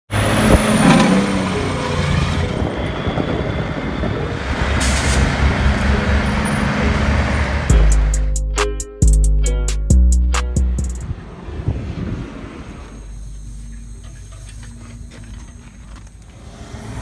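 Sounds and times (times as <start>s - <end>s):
truck diesel engine running: 0.1s - 8.6s, 9.9s - 17.0s
music with heavy bass beat: 7.6s - 11.1s.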